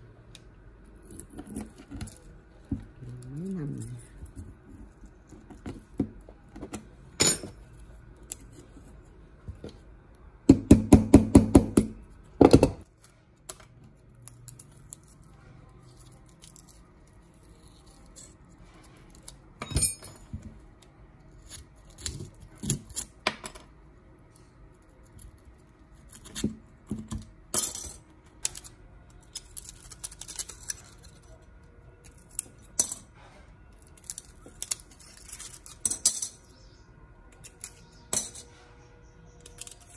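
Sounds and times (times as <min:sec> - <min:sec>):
metal parts clicking and clinking: 0:07.2 - 0:08.5, 0:19.2 - 0:20.5, 0:27.5 - 0:31.4, 0:33.9 - 0:36.6, 0:37.3 - 0:38.6.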